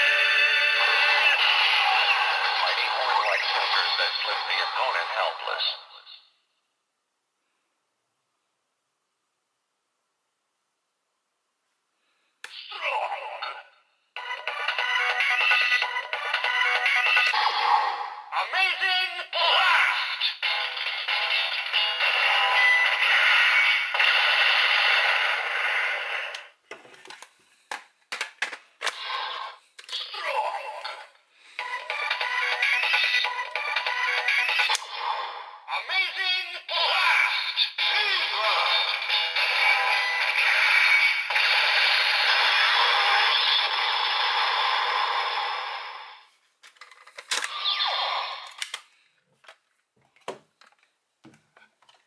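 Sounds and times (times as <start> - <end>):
electronic toy sound effect: 0.0 - 6.2, 19.3 - 26.3, 31.7 - 46.0, 47.4 - 48.6
plastic clicks and snaps: 48.4 - 49.6.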